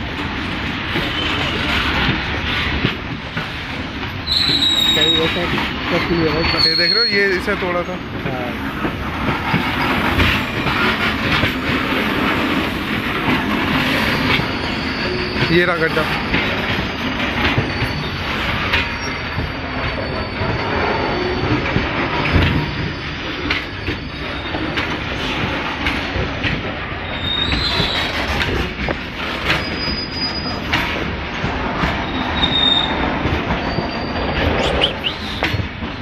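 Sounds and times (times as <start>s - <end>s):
train wheels rumbling on rail: 0.0s - 36.0s
high wheel squeals: 4.2s - 8.0s, 13.7s - 24.9s, 27.0s - 28.6s, 29.3s - 31.0s, 32.0s - 35.6s.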